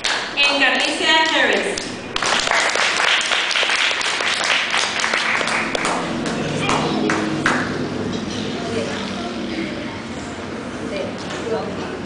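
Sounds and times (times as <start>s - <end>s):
audience applause: 2.2s - 7.7s
voices: 5.9s - 12.0s.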